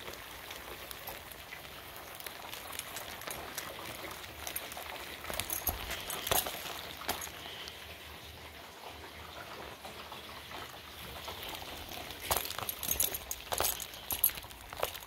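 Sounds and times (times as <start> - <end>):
steady outdoor hiss: 0.0 - 15.0
footsteps on concrete: 4.4 - 7.4, 11.8 - 15.0.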